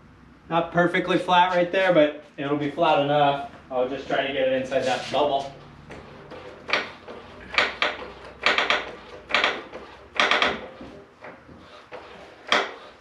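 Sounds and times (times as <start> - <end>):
floor jack clanking: 5.9 - 12.9.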